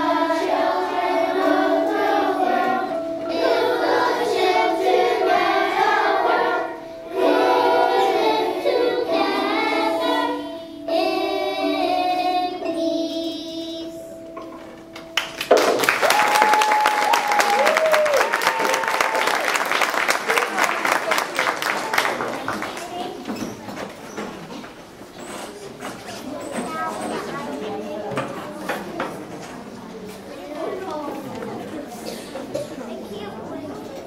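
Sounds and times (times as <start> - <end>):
children's choir singing: 0.0 - 15.4, 30.8 - 32.7
audience applause: 15.2 - 23.2
audience whooping: 15.7 - 20.8.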